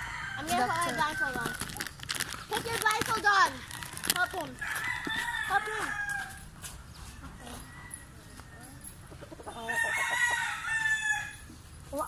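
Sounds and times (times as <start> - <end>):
rooster crowing: 0.0 - 1.6, 3.8 - 6.4, 9.6 - 11.5.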